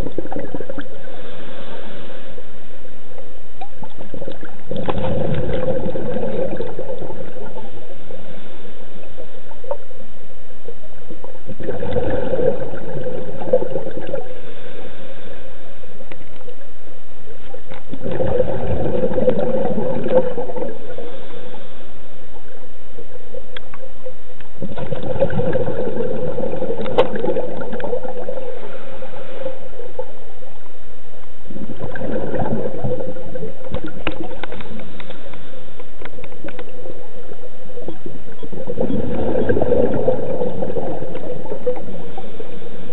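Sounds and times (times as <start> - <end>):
exhaled bubbles underwater: 0.0 - 42.9
diver breathing through regulator: 1.0 - 2.6.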